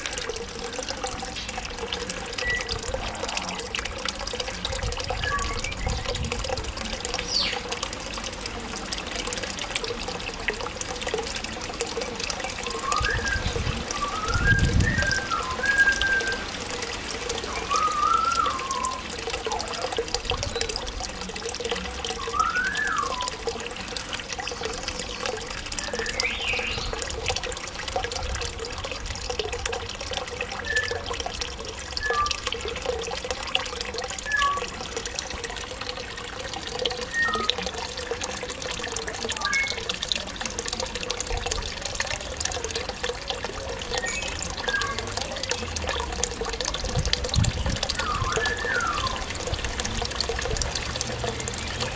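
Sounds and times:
water trickling: 0.0s - 51.9s
parrot whistling: 12.8s - 16.4s, 17.5s - 19.0s, 22.2s - 23.3s, 48.0s - 49.2s.

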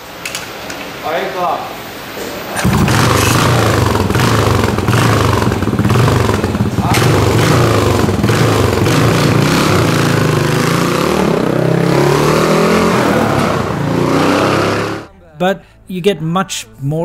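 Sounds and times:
motorcycle engine revving: 2.6s - 15.1s.

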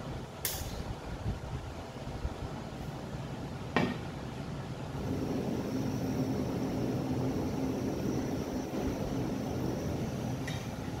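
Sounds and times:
gas burner flame hissing: 4.4s - 11.0s.

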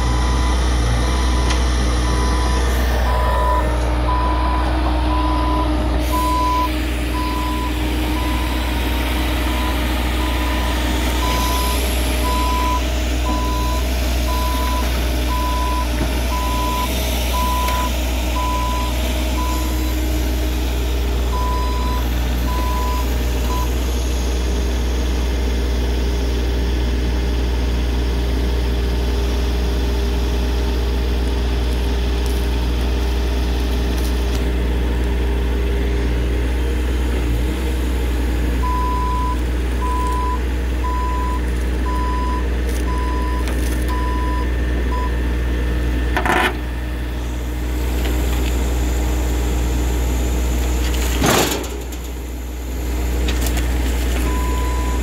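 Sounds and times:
backup alarm beeping: 0.0s - 8.8s, 9.4s - 20.0s, 21.3s - 23.7s, 38.6s - 45.1s, 54.3s - 55.0s
diesel engine running: 0.0s - 55.0s.

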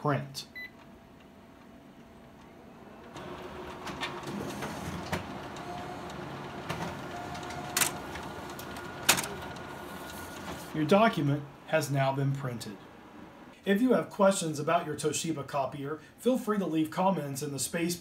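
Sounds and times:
copier mechanical whir: 2.2s - 11.6s
copier sharp clicks: 3.2s - 10.6s.

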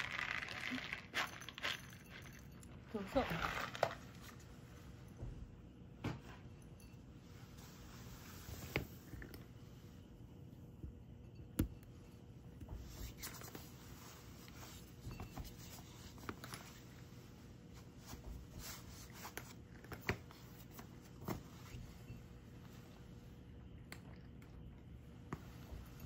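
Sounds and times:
cat crunching dry kibble: 0.0s - 4.3s.

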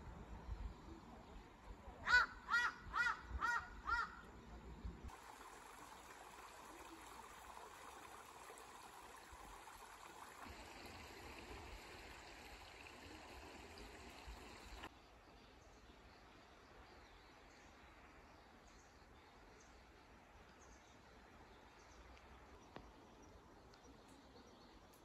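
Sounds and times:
crow cawing: 2.0s - 4.2s
stream trickling over stones: 5.1s - 14.9s.

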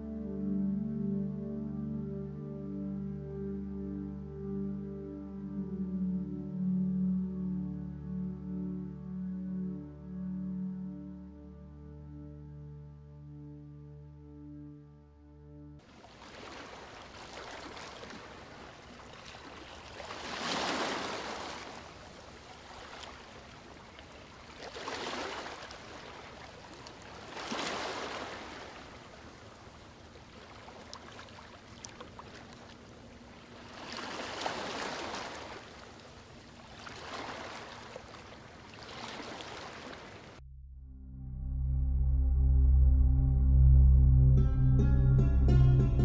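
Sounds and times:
sea waves washing on shore: 15.8s - 40.4s.

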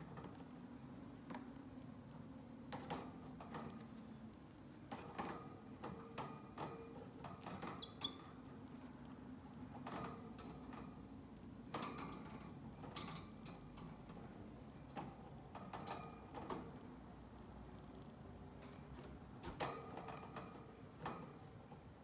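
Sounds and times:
canary peep: 7.4s - 8.8s.

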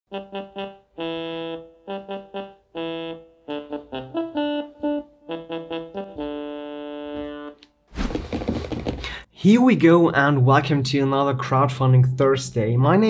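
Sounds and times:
synth melody: 0.1s - 7.7s.

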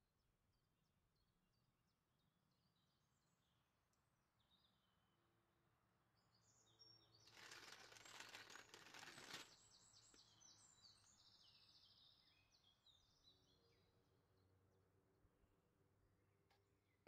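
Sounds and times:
crackly rustle on baking paper: 7.3s - 9.6s.

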